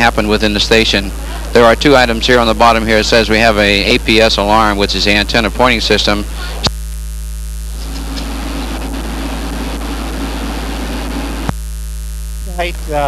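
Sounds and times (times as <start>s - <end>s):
mains hum: 0.0s - 13.0s
steady rushing noise: 7.6s - 11.6s.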